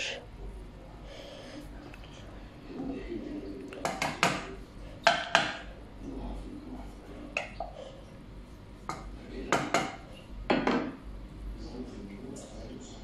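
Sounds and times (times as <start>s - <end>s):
wooden spoon knocking on pot: 3.8s - 5.7s, 8.9s - 11.0s.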